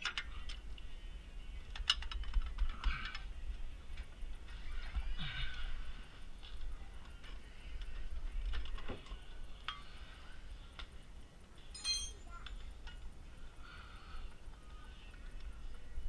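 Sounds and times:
ringing metal clink: 11.8s - 12.4s.

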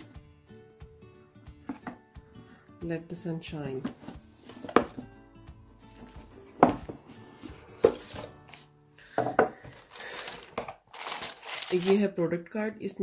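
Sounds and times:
soft background music: 0.0s - 13.0s
cardboard box taps and knocks: 6.6s - 7.0s.

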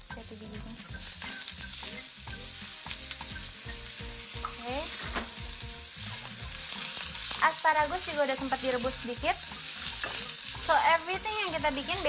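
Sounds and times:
asparagus sizzling in frying pan: 0.0s - 12.0s.

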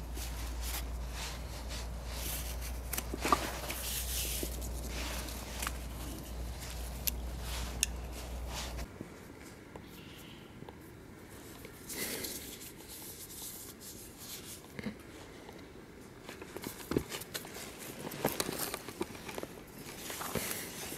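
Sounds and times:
rope and clothing rustling: 0.0s - 9.6s, 16.2s - 20.9s.

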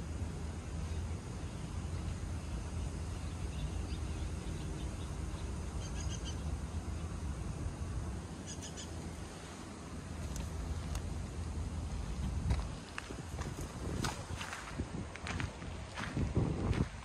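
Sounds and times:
low outdoor rumble: 0.0s - 17.0s
faint bird chirps: 0.9s - 7.1s, 8.4s - 9.0s.

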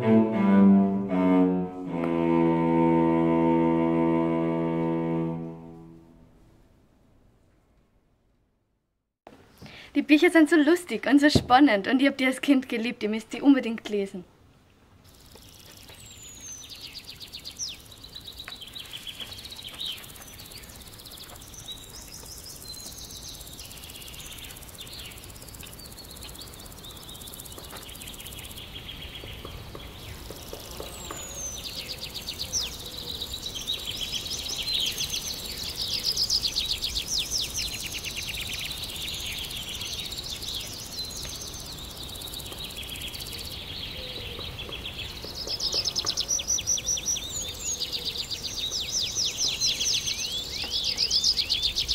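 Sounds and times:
songbirds chirping and trilling: 15.0s - 51.9s.

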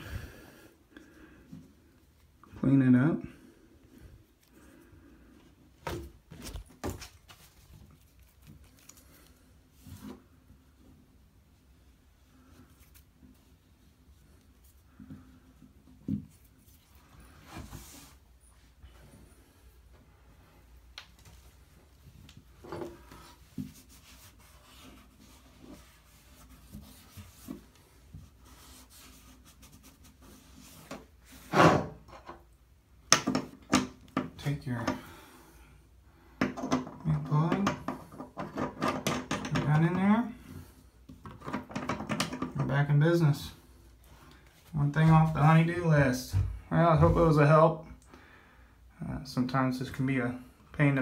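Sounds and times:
rag wiping bathtub surface: 22.4s - 31.6s.

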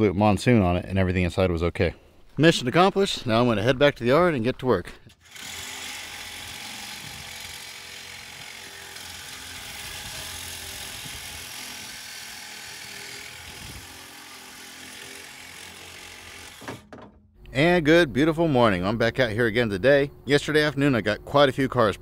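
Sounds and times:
cordless power tool cutting metal: 5.2s - 17.0s.

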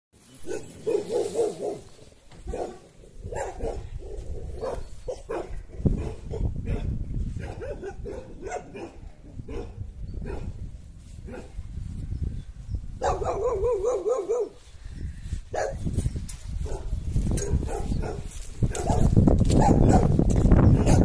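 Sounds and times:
dog barking: 0.5s - 10.6s, 11.3s - 11.6s, 13.0s - 14.6s, 15.5s - 15.8s, 16.6s - 21.0s.

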